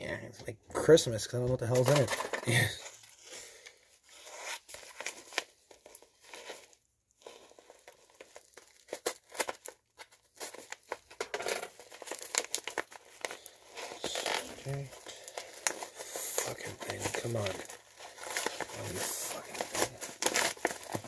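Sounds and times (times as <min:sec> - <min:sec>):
paper mailer tearing: 0:07.8 - 0:21.0.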